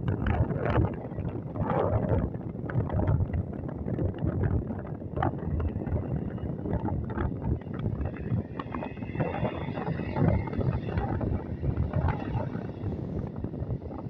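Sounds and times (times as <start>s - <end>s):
wind buffeting microphone: 0.0s - 14.0s
distant jet engines: 4.6s - 14.0s.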